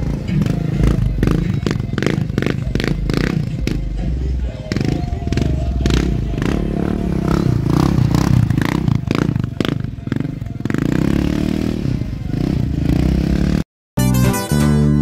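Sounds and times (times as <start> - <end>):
quad engine revving: 0.0 - 13.6
guitar music: 14.0 - 15.0.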